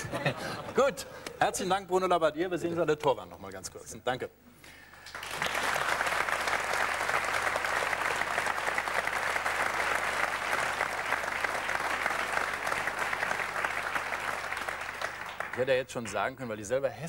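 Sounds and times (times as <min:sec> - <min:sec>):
audience applauding: 0:05.0 - 0:16.3.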